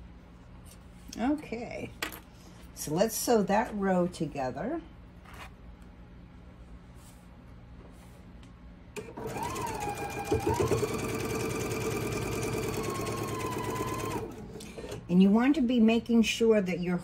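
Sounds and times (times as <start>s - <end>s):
sewing machine motor whine: 9.0s - 15.0s.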